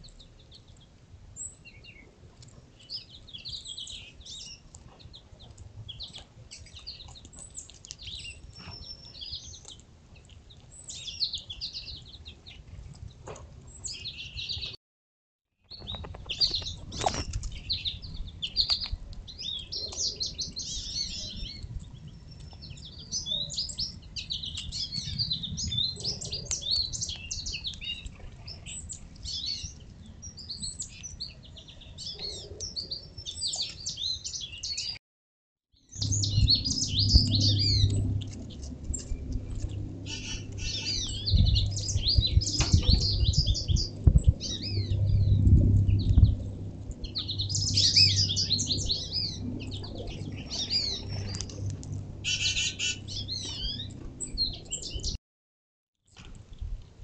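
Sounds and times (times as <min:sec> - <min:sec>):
songbirds chirping and singing: 0:00.0 - 0:14.8, 0:15.7 - 0:35.0, 0:35.9 - 0:55.2.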